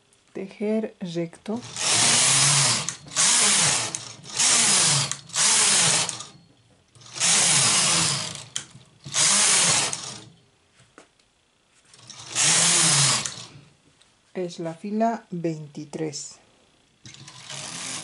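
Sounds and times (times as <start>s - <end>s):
knitting machine carriage rasping: 1.6s - 6.4s, 7.0s - 10.3s, 12.0s - 13.6s, 17.1s - 18.0s.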